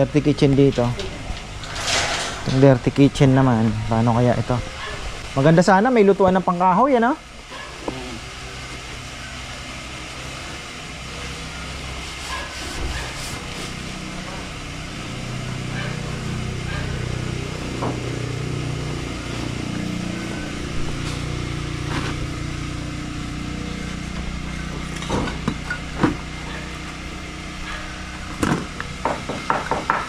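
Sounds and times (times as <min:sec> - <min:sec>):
engine running with low hum: 0:00.0 - 0:30.0
sharp knocks: 0:28.4 - 0:30.0.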